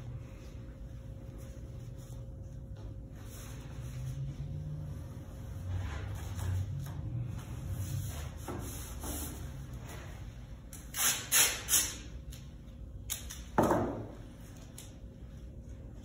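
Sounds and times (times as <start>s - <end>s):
masking tape tearing: 10.8s - 12.1s.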